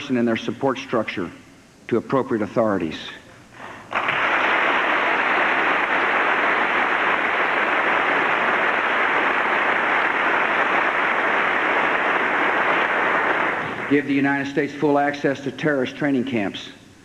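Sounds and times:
large audience applauding: 3.9s - 14.1s.

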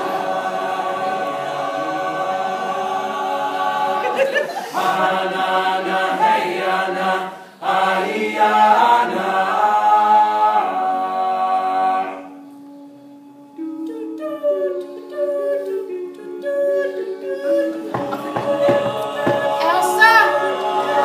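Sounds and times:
men singing in close harmony: 0.0s - 12.4s, 14.4s - 21.0s.

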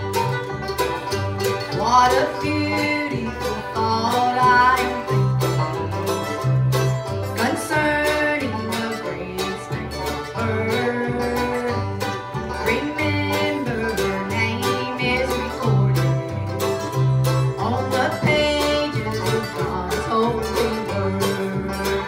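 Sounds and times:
acoustic guitar: 0.0s - 22.0s
mandolin: 0.0s - 22.0s
upright bass: 0.0s - 22.0s.

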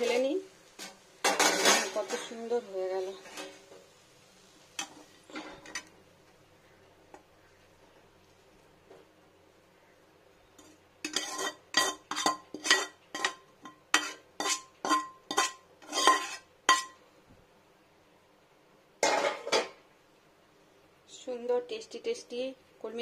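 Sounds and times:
metal spatula scraping a wok: 0.0s - 3.9s, 4.7s - 6.0s, 10.6s - 17.0s.

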